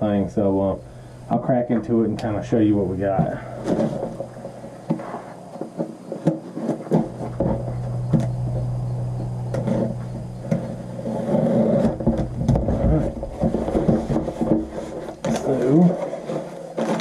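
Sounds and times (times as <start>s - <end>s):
steady low hum: 0.0s - 17.0s
cardboard box flaps rustling: 10.6s - 17.0s.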